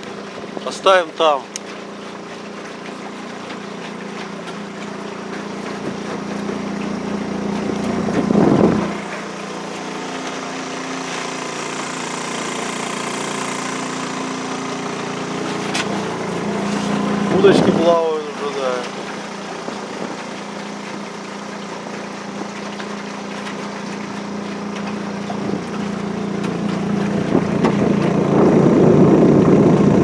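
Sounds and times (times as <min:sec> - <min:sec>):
outboard motor running: 0:00.0 - 0:30.0.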